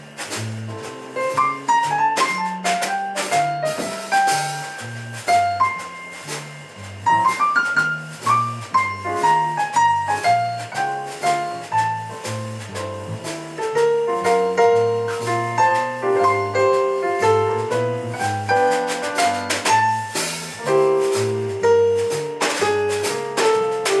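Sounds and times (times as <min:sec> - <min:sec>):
drum kit and cymbals: 0:00.0 - 0:24.0
electric bass line: 0:00.0 - 0:24.0.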